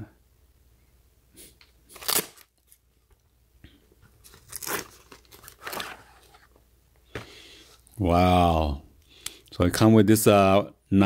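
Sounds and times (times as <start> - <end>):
velcro ripped open: 1.9 - 2.8, 4.3 - 5.8.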